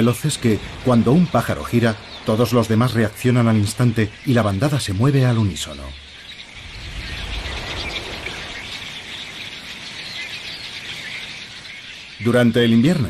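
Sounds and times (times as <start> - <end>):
flock of blackbirds calling: 0.0 - 13.0
low rumble: 6.5 - 8.8.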